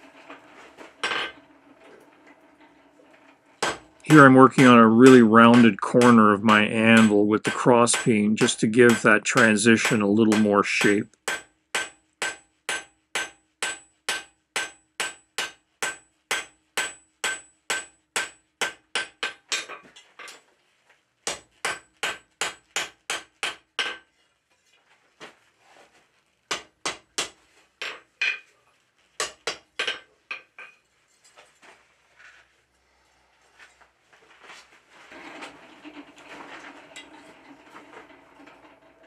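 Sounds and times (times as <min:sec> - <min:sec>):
hammer striking steel on anvil: 0:03.6 - 0:19.8, 0:21.3 - 0:24.1.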